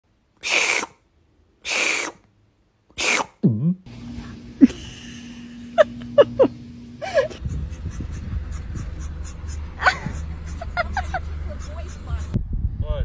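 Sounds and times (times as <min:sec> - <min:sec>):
sneeze-like bursts: 0:00.4 - 0:01.0, 0:01.6 - 0:02.2, 0:03.0 - 0:03.4
steady hum: 0:03.9 - 0:12.4
puppy whimpering: 0:07.9 - 0:10.3.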